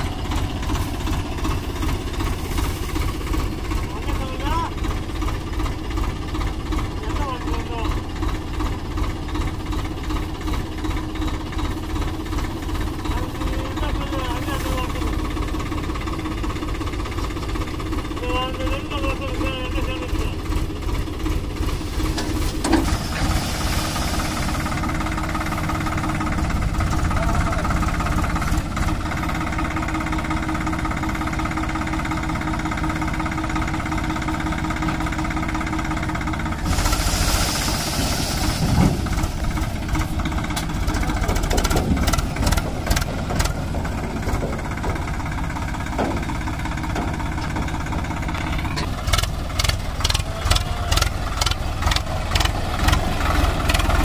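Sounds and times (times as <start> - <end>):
tractor diesel engine running: 0.0 - 54.0
burst of hiss: 36.7 - 38.8.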